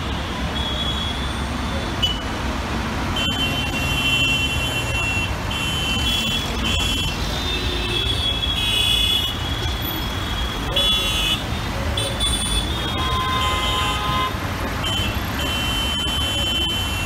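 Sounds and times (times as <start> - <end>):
low rumble of traffic engines: 0.0 - 17.0
vehicle horns honking: 3.2 - 17.0.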